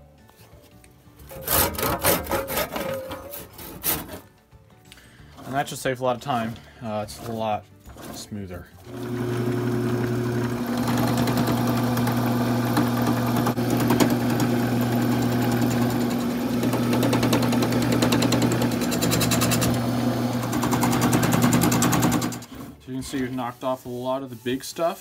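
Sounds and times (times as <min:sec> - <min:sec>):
wood lathe motor hum: 0:08.9 - 0:22.5
gouge cutting spinning wood: 0:08.9 - 0:22.6.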